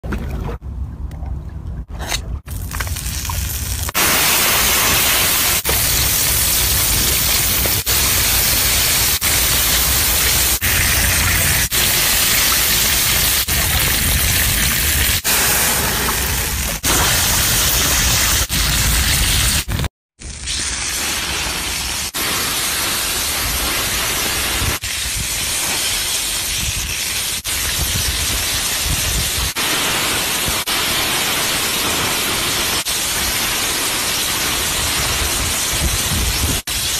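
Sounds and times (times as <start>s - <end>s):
seafood sizzling on stone: 2.5s - 27.4s.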